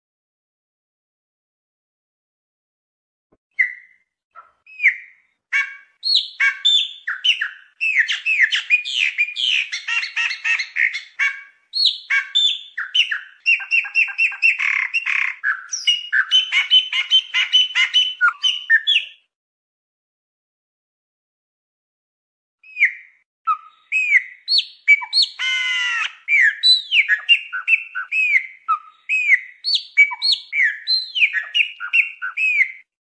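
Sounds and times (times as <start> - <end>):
blackbird singing: 3.6 - 19.2, 22.6 - 32.9.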